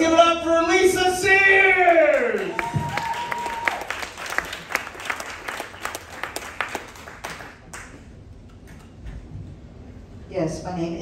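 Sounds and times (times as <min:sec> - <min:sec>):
audience applauding: 0:01.8 - 0:08.0.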